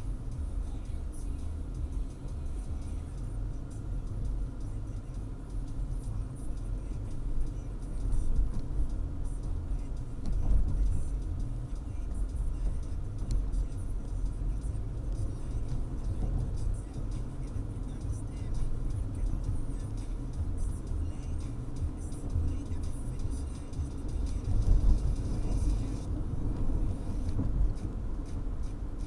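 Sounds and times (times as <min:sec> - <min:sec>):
car road and engine rumble: 0:00.0 - 0:29.0.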